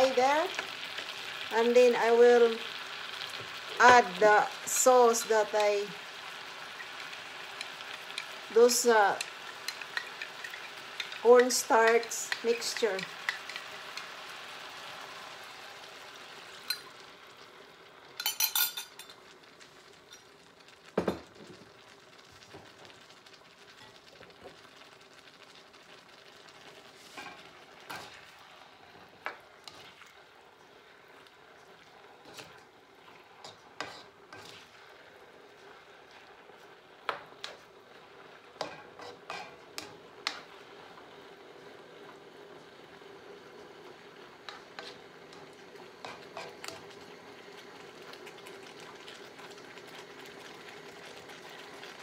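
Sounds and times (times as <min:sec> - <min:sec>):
sauce sizzling in a wok: 0:00.0 - 0:52.0
spatula stirring food: 0:03.2 - 0:14.7, 0:26.6 - 0:40.7, 0:44.4 - 0:52.0.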